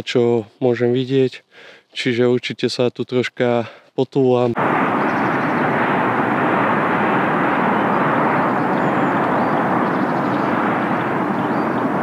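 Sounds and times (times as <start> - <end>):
steady rushing noise: 4.6 - 12.0.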